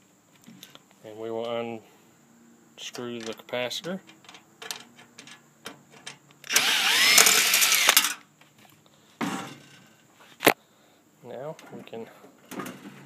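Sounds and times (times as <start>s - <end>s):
drill bit clicking on screw: 6.5s - 8.0s
power drill whining: 6.5s - 8.1s.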